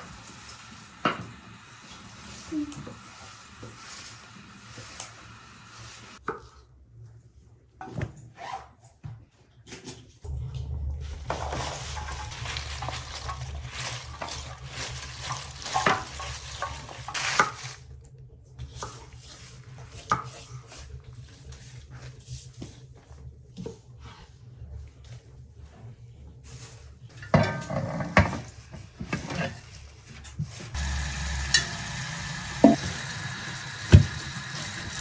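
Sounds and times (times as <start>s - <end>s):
steady low hum: 10.2s - 27.6s
stirring: 11.2s - 17.9s
utensils knocking against pots: 11.3s - 17.7s, 30.9s - 33.1s
sizzling hiss: 30.8s - 35.0s.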